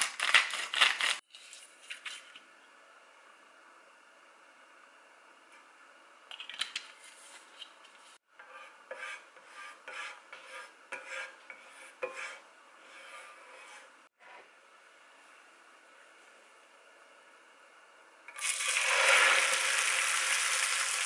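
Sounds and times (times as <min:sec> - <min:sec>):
scraping and rubbing: 0:07.0 - 0:14.4.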